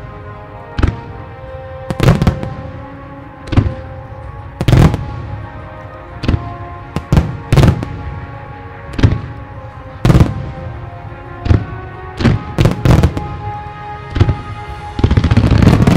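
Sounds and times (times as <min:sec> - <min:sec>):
music with long held notes: 0:00.0 - 0:15.9
fireworks bursting: 0:01.8 - 0:02.8, 0:03.5 - 0:04.0, 0:04.6 - 0:05.5, 0:06.2 - 0:08.2, 0:08.9 - 0:09.4, 0:10.0 - 0:10.8, 0:11.4 - 0:15.9.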